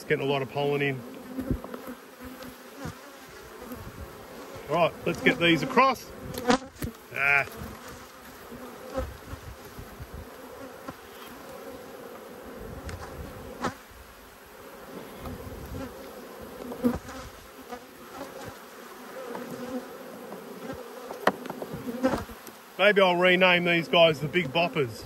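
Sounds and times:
honeybees buzzing: 0:00.0 - 0:25.0
hive tool knocking wooden frames: 0:20.3 - 0:22.4.

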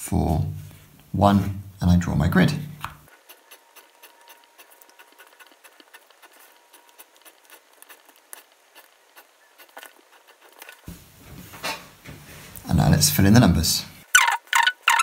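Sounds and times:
pencil scratching on paper: 0:03.1 - 0:10.8.

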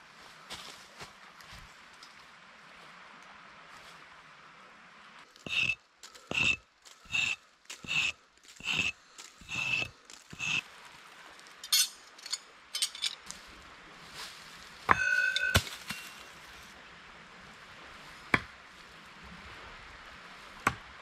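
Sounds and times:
light metal clinks: 0:11.6 - 0:13.3, 0:14.9 - 0:16.3
ringing metal clang: 0:14.9 - 0:16.3.

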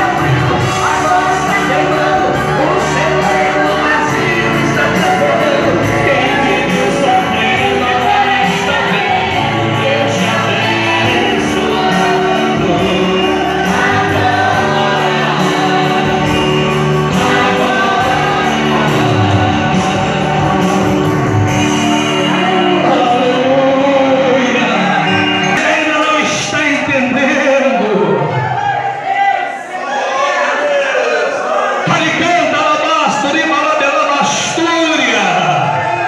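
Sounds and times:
electronic keyboard chords: 0:00.0 - 0:27.8
man singing into a microphone: 0:00.0 - 0:28.4, 0:31.8 - 0:36.0.

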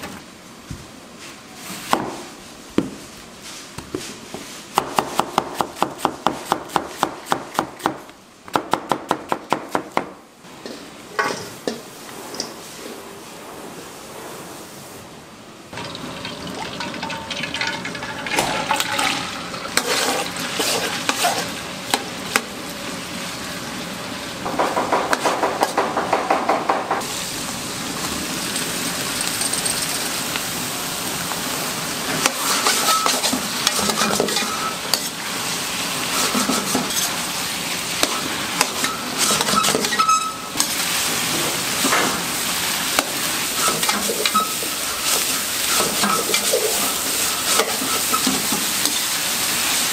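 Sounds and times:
vegetables sizzling in oil: 0:15.8 - 0:24.5, 0:27.0 - 0:49.9
metal utensil scraping a pan: 0:18.3 - 0:21.6, 0:32.2 - 0:35.2, 0:38.1 - 0:40.8, 0:43.6 - 0:49.1.

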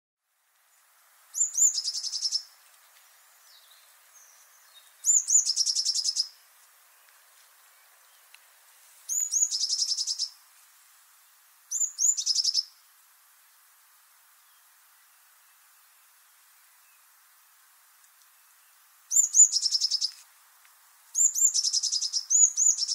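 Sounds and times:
bird singing with trill: 0:01.4 - 0:02.5, 0:03.5 - 0:06.4, 0:09.1 - 0:10.4, 0:11.7 - 0:12.8, 0:19.1 - 0:20.2, 0:21.2 - 0:22.9.

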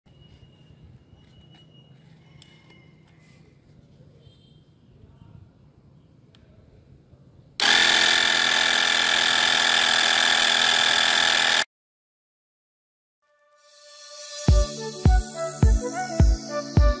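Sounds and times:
electric air pump whining: 0:07.6 - 0:11.7.

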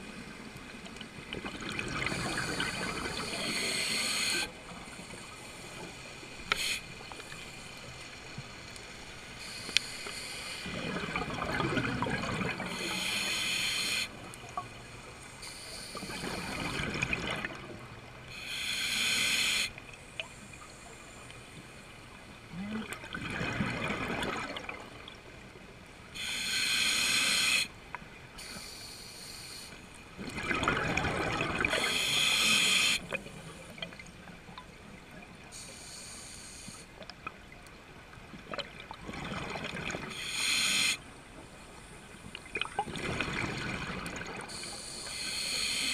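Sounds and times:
exhaled bubbles gurgling underwater: 0:00.0 - 0:05.0, 0:10.6 - 0:13.4, 0:15.8 - 0:18.2, 0:22.5 - 0:25.7, 0:30.1 - 0:35.5, 0:38.3 - 0:41.0, 0:42.3 - 0:45.8
scuba regulator hiss: 0:02.1 - 0:04.5, 0:06.5 - 0:06.9, 0:09.4 - 0:10.7, 0:12.6 - 0:14.2, 0:15.4 - 0:16.6, 0:18.3 - 0:19.7, 0:26.2 - 0:27.7, 0:28.4 - 0:29.8, 0:31.7 - 0:33.0, 0:35.6 - 0:36.9, 0:40.1 - 0:41.0, 0:44.5 - 0:45.9.

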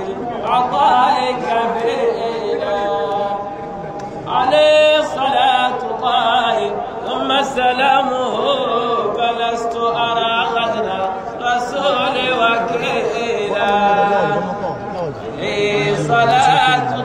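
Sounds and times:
man chanting into a microphone: 0:04.3 - 0:17.0.

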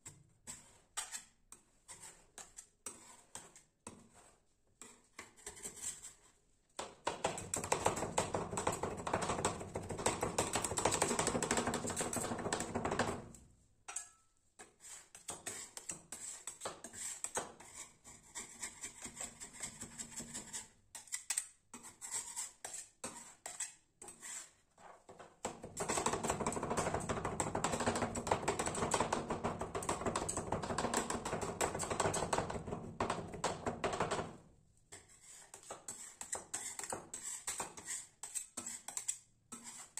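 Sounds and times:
metal spatulas chopping on cold plate: 0:13.9 - 0:14.3.

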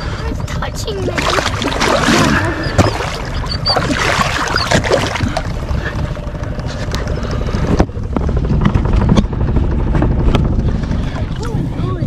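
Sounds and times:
wind rumble on microphone: 0:00.0 - 0:12.0
fish splashing in water: 0:01.1 - 0:05.5.

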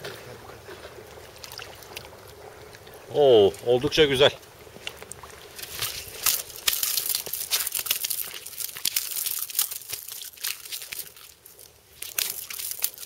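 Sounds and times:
fish thrashing on concrete: 0:05.0 - 0:13.0.

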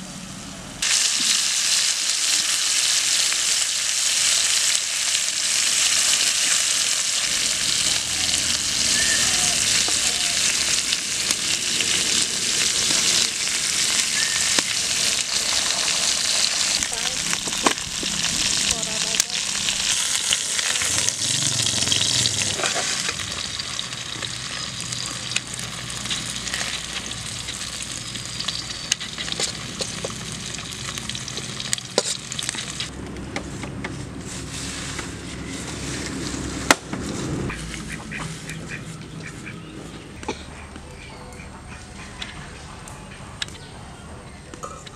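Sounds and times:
fish sizzling in oil: 0:00.8 - 0:32.9.

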